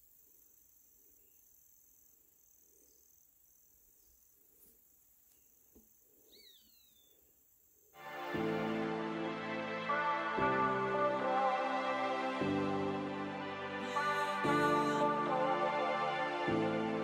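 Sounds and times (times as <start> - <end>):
insect trilling: 5.3 - 7.9.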